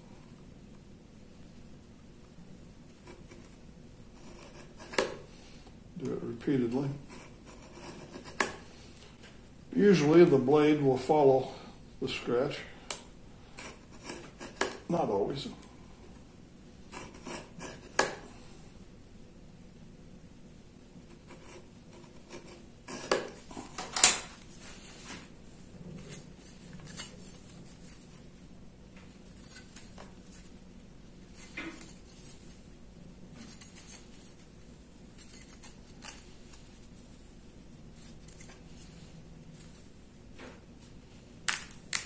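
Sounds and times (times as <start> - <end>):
knife scoring metal sheet: 35.1 - 36.3.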